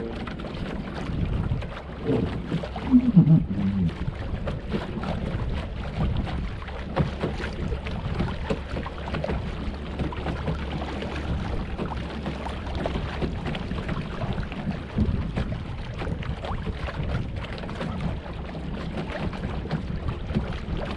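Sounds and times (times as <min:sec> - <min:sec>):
waves lapping against hull: 0:00.0 - 0:20.9
wind buffeting microphone: 0:00.0 - 0:20.9
low voice-like sound: 0:02.0 - 0:04.1.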